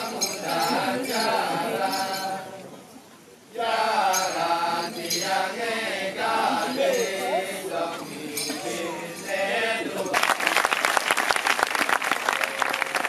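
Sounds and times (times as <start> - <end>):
male chorus chanting: 0.0 - 2.6, 3.5 - 10.2.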